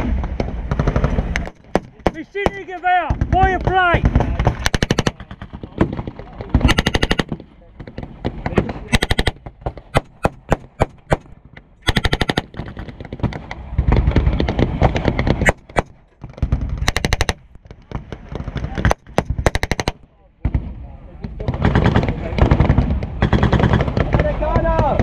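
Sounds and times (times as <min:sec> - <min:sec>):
single gunshots: 0:00.0 - 0:20.8
machine gun firing bursts: 0:00.5 - 0:02.2, 0:04.0 - 0:20.0, 0:21.5 - 0:25.0.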